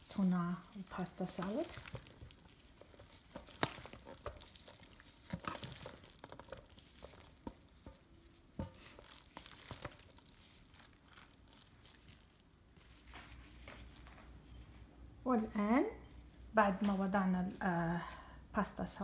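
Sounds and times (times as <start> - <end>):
spatula stirring pasta salad: 0.0 - 14.0.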